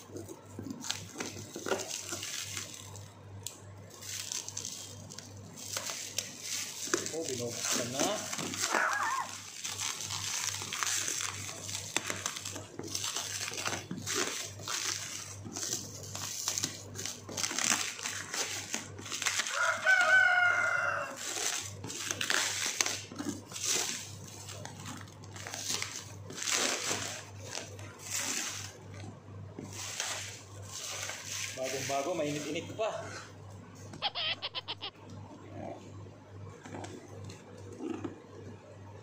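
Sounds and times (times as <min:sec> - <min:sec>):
plastic shrink wrap crinkling: 0:00.0 - 0:32.8
rooster crowing: 0:19.5 - 0:21.4.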